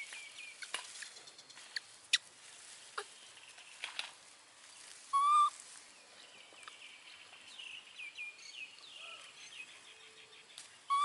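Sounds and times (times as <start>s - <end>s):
whistled animal call: 5.2s - 5.5s.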